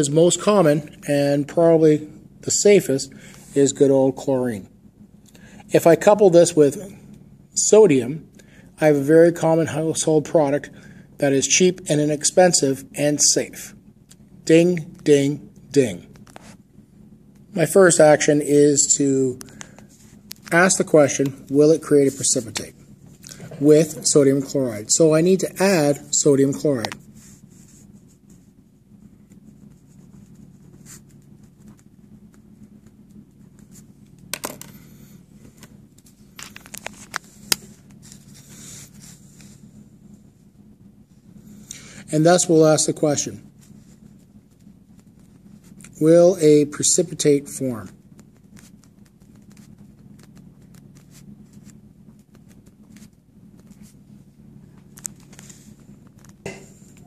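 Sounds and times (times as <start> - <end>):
steady low hum: 0.0 - 57.0
pen scratching on paper: 29.3 - 33.9
paper rustling: 35.4 - 39.6, 47.8 - 54.1.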